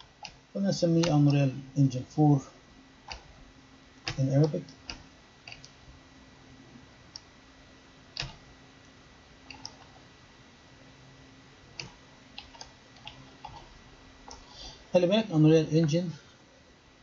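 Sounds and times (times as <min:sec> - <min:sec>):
computer keyboard keystrokes: 0:03.1 - 0:03.3, 0:04.0 - 0:05.8, 0:08.2 - 0:08.4, 0:09.5 - 0:09.9, 0:11.8 - 0:13.7.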